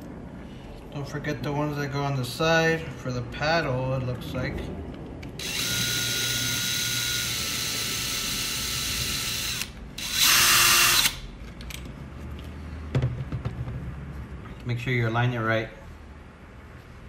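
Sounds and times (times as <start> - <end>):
cordless drill driving screws: 5.4 - 11.2
parts clicking and knocking: 11.0 - 14.0.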